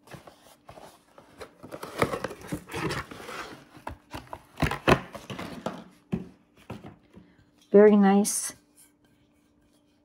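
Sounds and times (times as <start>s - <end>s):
cardboard rustling and scraping: 0.0s - 7.1s.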